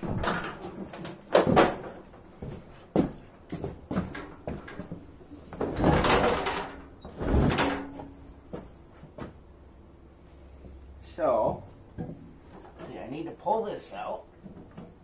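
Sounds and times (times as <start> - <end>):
metal knocks and clanks on wood: 0.0 - 2.1, 3.0 - 9.4.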